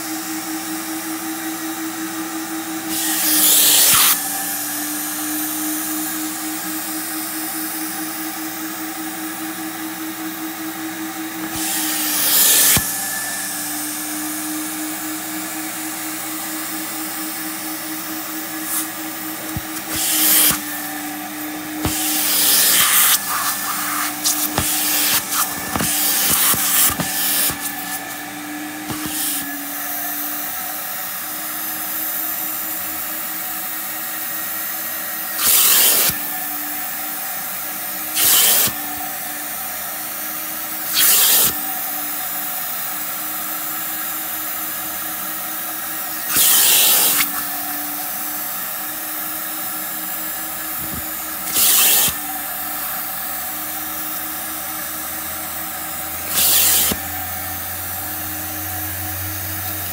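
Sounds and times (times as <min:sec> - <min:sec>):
vacuum motor running: 0:00.0 - 0:59.9
hissing rushes through tool: 0:17.9 - 0:29.6, 0:56.2 - 0:57.1.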